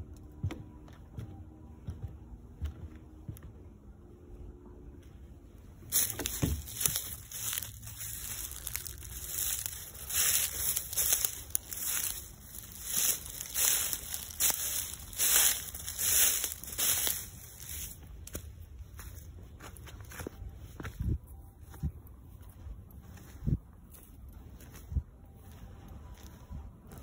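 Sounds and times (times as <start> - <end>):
footsteps through dry grass and leaves: 5.7 - 27.0.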